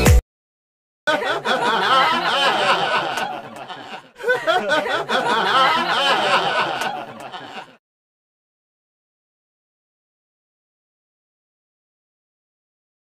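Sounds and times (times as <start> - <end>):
people laughing and chattering: 1.1 - 7.8.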